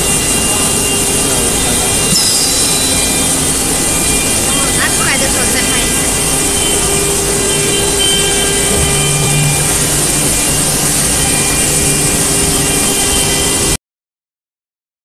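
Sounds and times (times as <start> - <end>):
vacuum pump drone with hiss: 0.0 - 13.8
low hum: 1.8 - 13.8.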